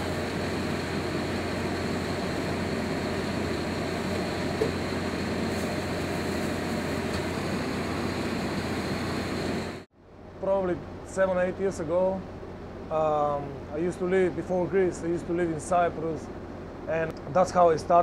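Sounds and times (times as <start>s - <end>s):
mechanical hum of equipment: 0.0s - 18.0s.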